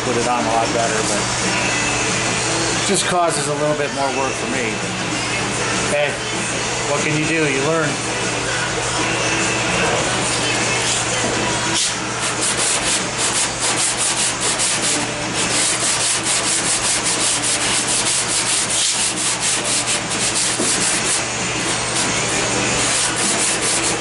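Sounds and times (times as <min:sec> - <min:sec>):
sandpaper rubbing on filler: 0:11.7 - 0:24.0.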